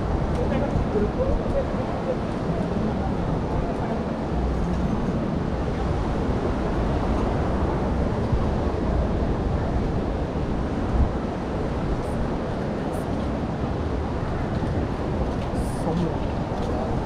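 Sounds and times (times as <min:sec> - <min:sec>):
sea surf rushing: 0:00.0 - 0:17.0
wind buffeting microphone: 0:00.0 - 0:17.0.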